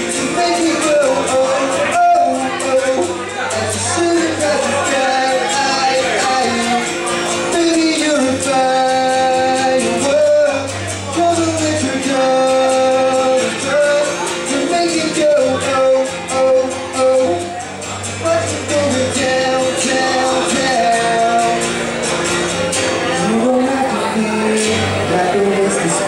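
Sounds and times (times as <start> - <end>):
acoustic guitars strumming: 0.0 - 26.0
man singing: 0.0 - 26.0.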